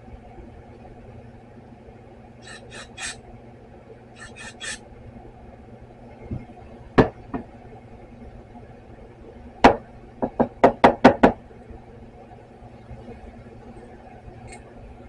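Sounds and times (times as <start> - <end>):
aerosol spray squirts: 2.4 - 3.2, 4.2 - 4.8.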